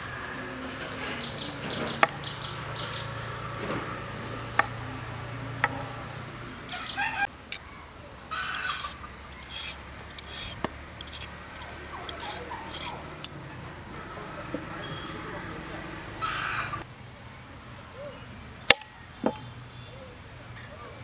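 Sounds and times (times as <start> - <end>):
vegetable peeler scraping carrot: 8.5 - 13.0.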